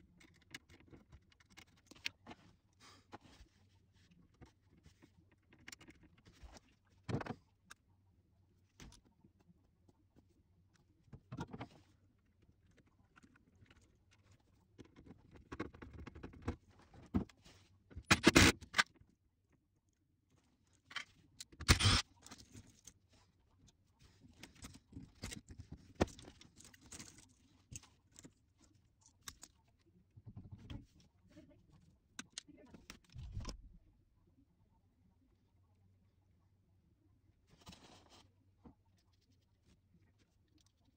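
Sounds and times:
clicks and scrapes of wiring: 0:00.1 - 0:03.2, 0:14.8 - 0:19.0, 0:20.8 - 0:23.0, 0:24.2 - 0:29.7.

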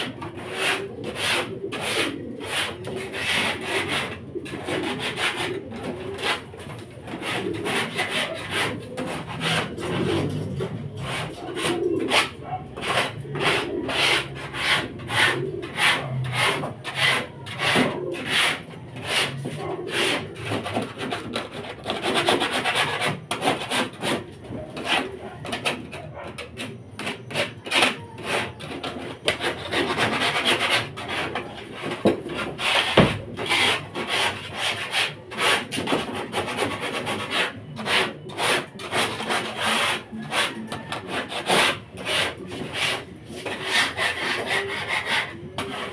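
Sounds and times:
tool scraping floor: 0:00.0 - 0:45.9.

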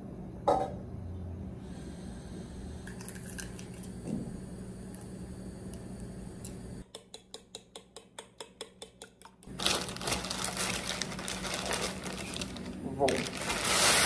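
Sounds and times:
paper bag crinkling: 0:09.5 - 0:14.0.

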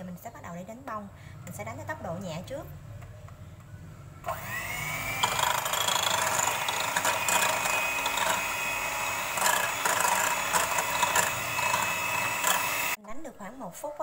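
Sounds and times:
hand mixer motor whine: 0:04.2 - 0:13.0.

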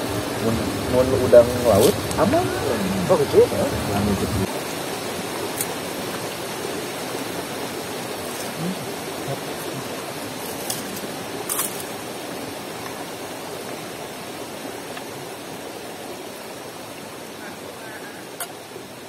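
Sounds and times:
river flowing over stones: 0:00.0 - 0:19.0.

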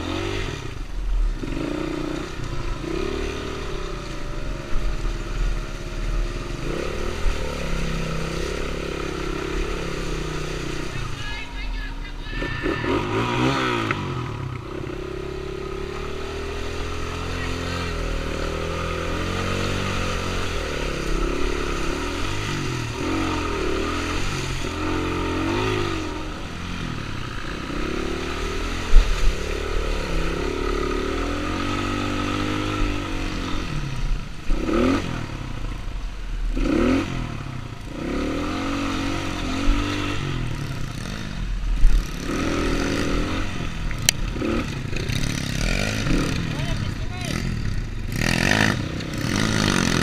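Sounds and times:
motorcycle engine revving: 0:00.0 - 0:50.0.

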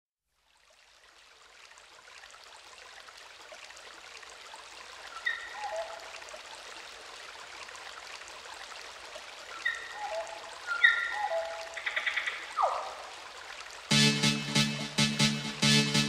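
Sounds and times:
rushing water-like synth noise: 0:09.6 - 0:16.0.

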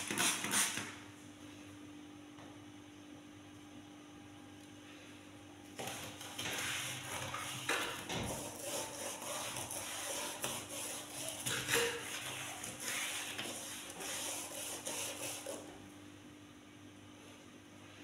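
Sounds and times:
sponge scrubbing metal frame: 0:05.8 - 0:15.8.

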